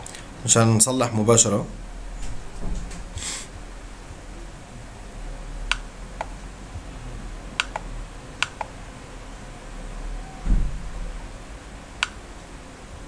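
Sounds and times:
low steady hum: 0.0s - 13.0s
computer mouse clicking: 7.6s - 8.7s.

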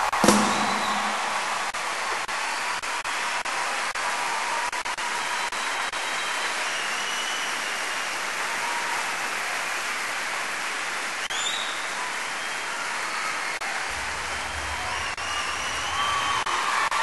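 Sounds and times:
audience applause: 0.0s - 17.0s
faint rising whistle: 14.3s - 16.5s.

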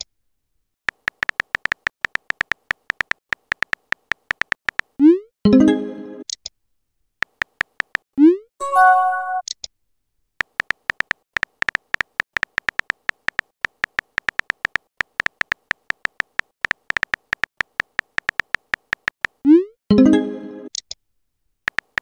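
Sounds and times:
keyboard tap clicks: 0.9s - 4.9s, 7.2s - 8.0s, 10.4s - 19.4s, 21.7s - 22.0s
multi-tone chime: 8.6s - 9.4s.

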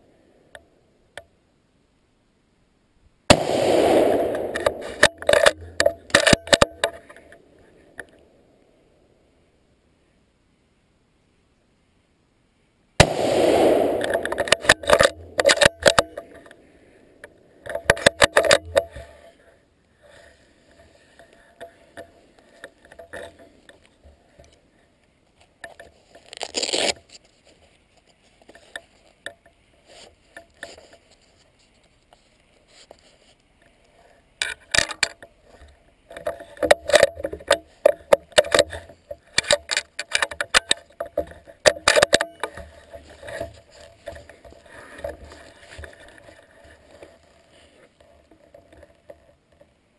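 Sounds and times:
gunshot: 3.3s - 5.1s, 13.0s - 15.7s
gun handling clicks and rattles: 4.1s - 8.2s, 13.8s - 16.6s, 17.2s - 19.1s, 34.4s - 49.8s.

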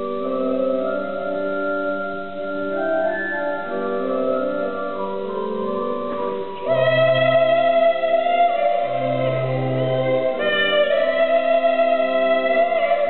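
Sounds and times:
children's choir singing: 6.6s - 13.0s.

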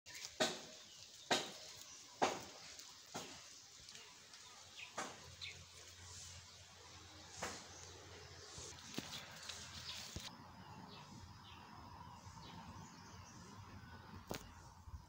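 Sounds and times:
footsteps crunching on dry leaves: 0.1s - 10.3s.

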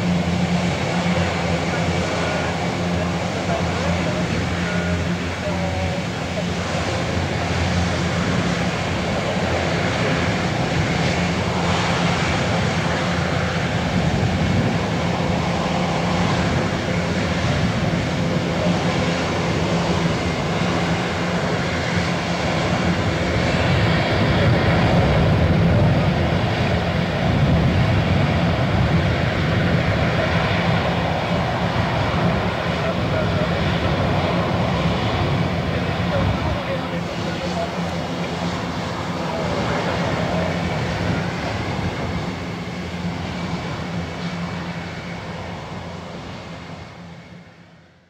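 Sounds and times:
turboprop engines running at low power: 0.0s - 48.0s.

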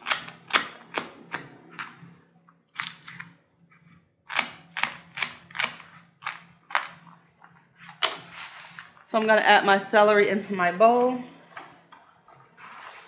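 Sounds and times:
knife chopping on plastic board: 0.0s - 1.5s, 4.3s - 7.0s.

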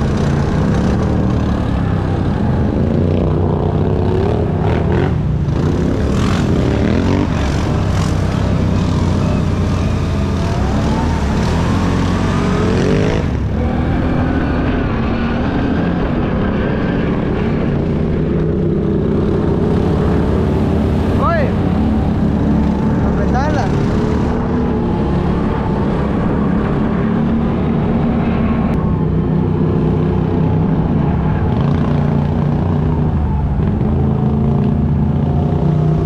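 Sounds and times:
atv engine revving: 0.0s - 36.0s.

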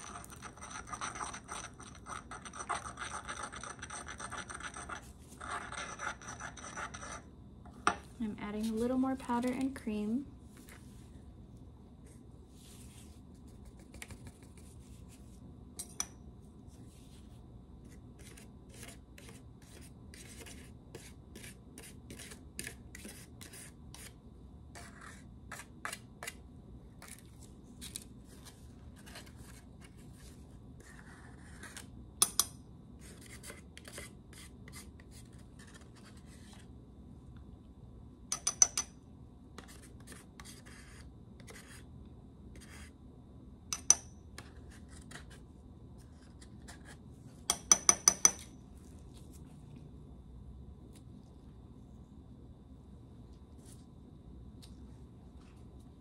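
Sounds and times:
metal spatula scraping: 0.0s - 7.3s.

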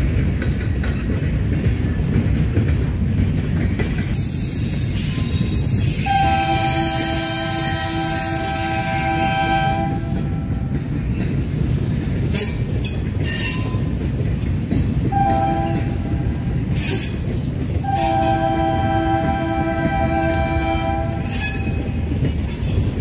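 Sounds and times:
train rumble: 0.0s - 23.0s
locomotive air horn blasts: 6.0s - 10.5s, 15.1s - 16.1s, 17.8s - 21.7s.

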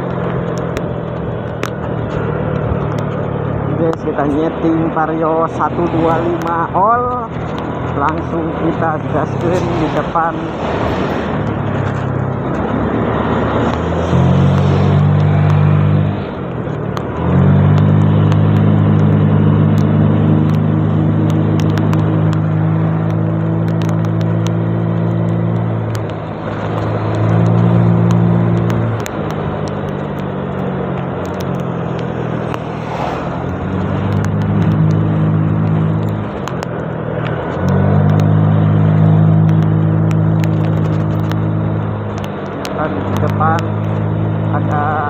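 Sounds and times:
wind rushing: 9.7s - 15.8s.

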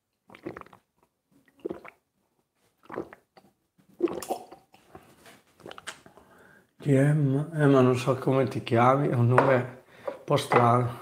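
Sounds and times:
man gulping a drink: 0.2s - 2.1s, 2.8s - 5.0s, 5.6s - 6.2s.

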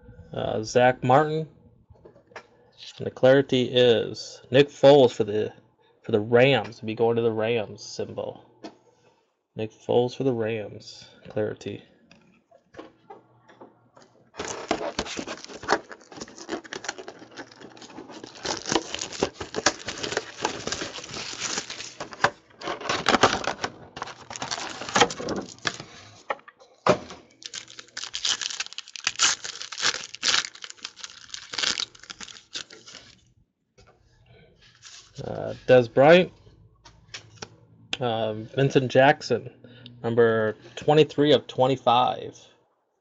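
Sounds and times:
wrappers crinkling and tearing: 14.4s - 26.0s, 27.2s - 33.2s.

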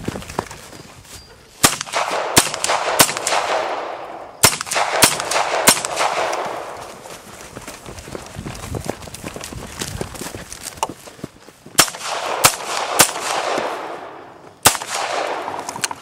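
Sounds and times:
pistol shots: 1.6s - 6.8s, 11.8s - 15.7s.

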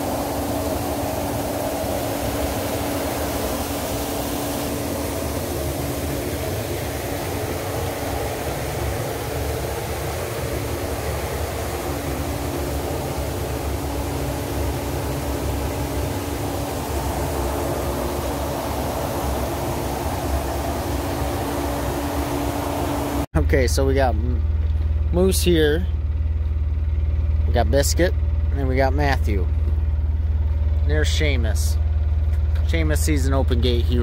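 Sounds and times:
machinery humming: 0.0s - 34.0s.

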